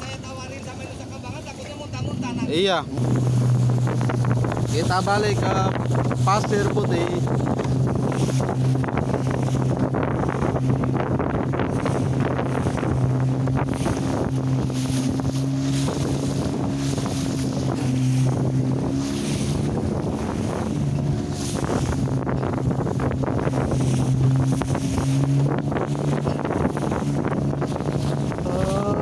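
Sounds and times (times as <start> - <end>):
boat motor humming: 0.0 - 29.0
water splashing against hull: 0.0 - 29.0
wind buffeting microphone: 0.0 - 29.0.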